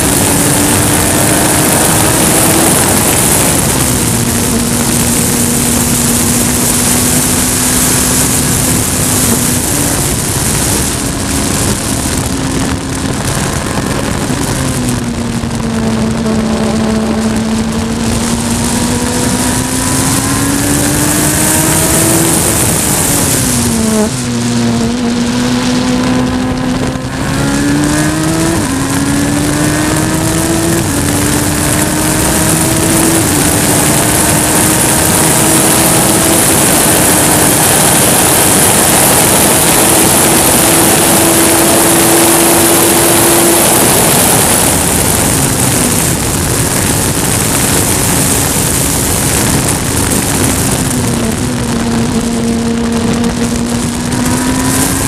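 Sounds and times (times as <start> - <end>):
race car engine upshifting: 0.0 - 55.0
wind and road rush: 0.0 - 55.0.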